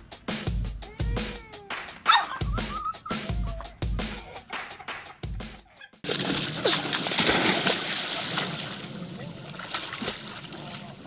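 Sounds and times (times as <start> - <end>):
dog swimming splashing water: 6.0 - 11.0.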